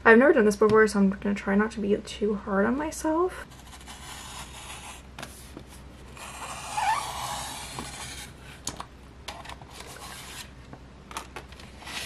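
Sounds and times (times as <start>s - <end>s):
paper trimmer blade scraping: 6.2s - 8.3s.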